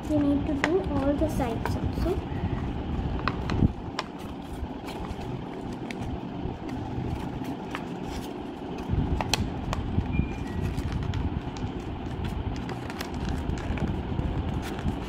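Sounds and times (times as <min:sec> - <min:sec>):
low background rumble: 0:00.0 - 0:15.0
paper rustling and crinkling: 0:04.0 - 0:15.0.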